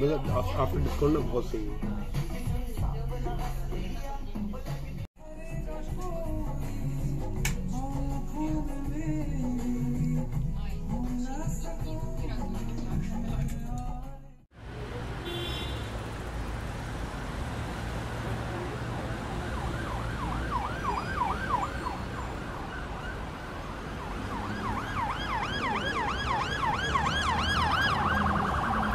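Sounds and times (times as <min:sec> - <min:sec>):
siren yelping: 0:19.3 - 0:28.9.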